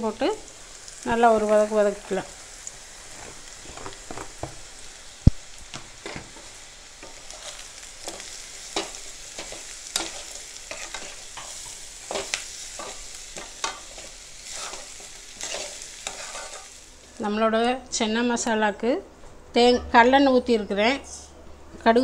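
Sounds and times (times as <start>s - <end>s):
food sizzling in oil: 0.0s - 17.5s
spatula scraping pan: 6.0s - 16.8s.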